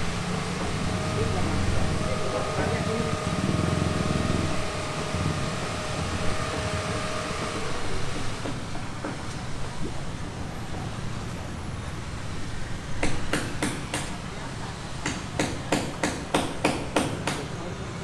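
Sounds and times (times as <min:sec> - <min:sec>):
vehicle engine rumble: 0:00.0 - 0:13.3
road traffic: 0:00.0 - 0:18.0.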